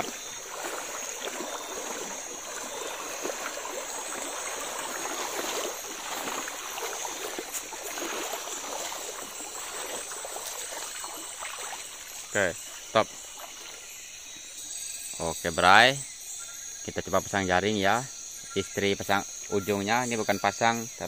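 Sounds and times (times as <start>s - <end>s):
river water splashing: 0.0s - 16.8s.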